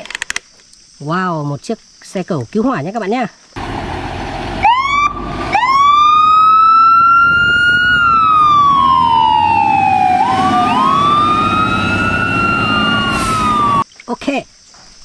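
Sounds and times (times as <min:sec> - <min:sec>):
fire engine siren wailing: 0:03.6 - 0:13.8
truck engine rumbling: 0:03.6 - 0:13.8.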